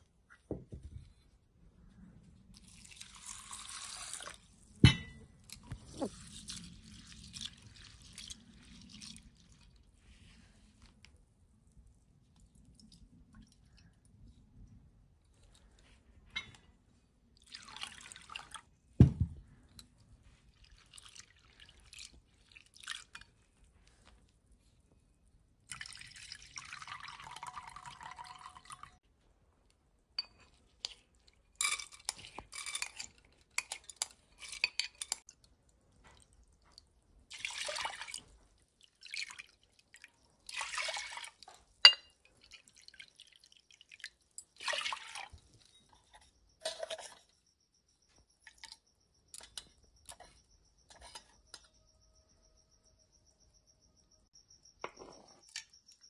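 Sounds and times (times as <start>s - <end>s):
loud thump: 19.0s - 19.4s
spoon clinking and scraping: 30.2s - 35.3s, 41.8s - 42.3s, 45.5s - 47.4s, 48.4s - 51.8s.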